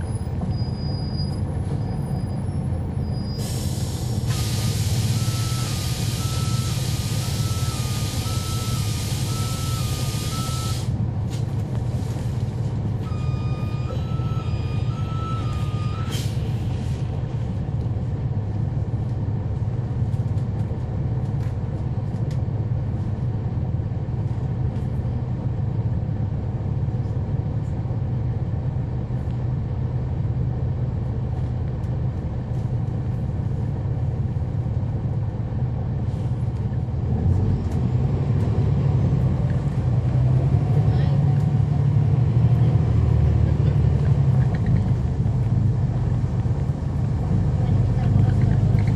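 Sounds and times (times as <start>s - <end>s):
bus diesel engine running: 0.0s - 48.9s
beeping tone: 13.1s - 16.1s.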